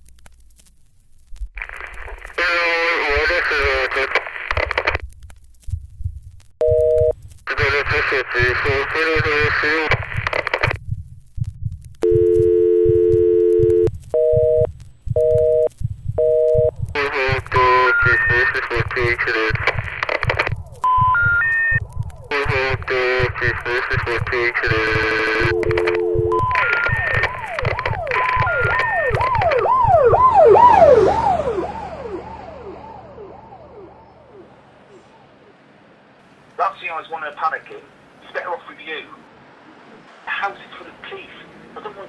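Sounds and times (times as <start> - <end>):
telephone dial tone: 6.6 - 7.1, 12.0 - 16.8, 24.8 - 29.7
busy signal beeping: 6.6 - 7.2, 12.0 - 16.7, 20.8 - 21.8, 24.8 - 29.4
low rhythmic pulse: 10.2 - 34.5
emergency vehicle siren wailing: 26.4 - 35.8.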